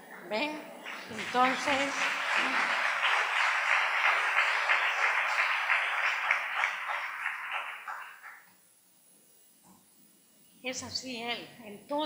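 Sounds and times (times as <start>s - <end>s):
audience applauding: 0.8s - 8.5s.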